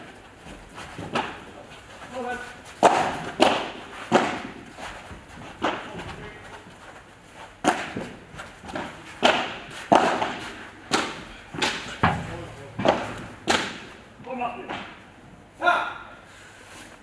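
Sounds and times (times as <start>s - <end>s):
ball struck by rackets: 7.6s - 14.0s.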